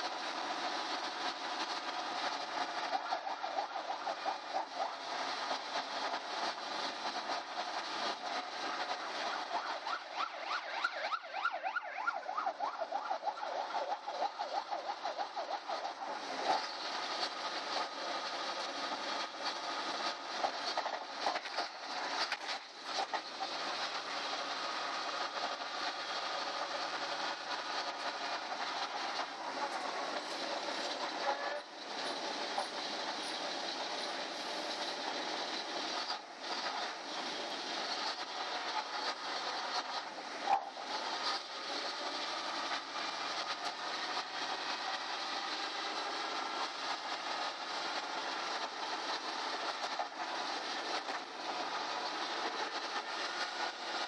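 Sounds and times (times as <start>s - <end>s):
bus engine and road noise: 0.0s - 54.0s
motorcycle siren yelp: 9.9s - 13.5s.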